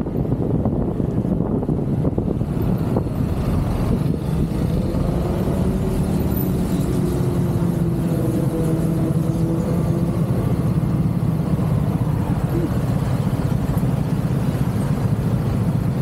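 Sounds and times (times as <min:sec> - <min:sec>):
road and wind noise: 0:00.0 - 0:16.0.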